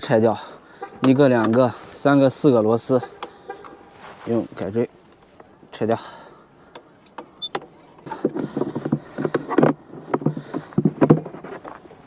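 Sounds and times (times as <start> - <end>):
plastic box scraping and creaking: 8.0 - 12.0.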